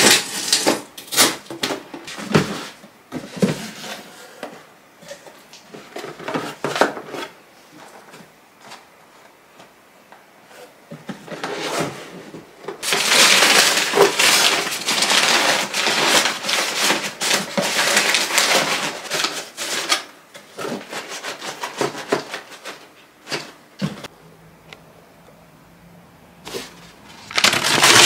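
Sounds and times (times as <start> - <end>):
packing paper crumpling: 12.8 - 22.8, 26.5 - 28.0.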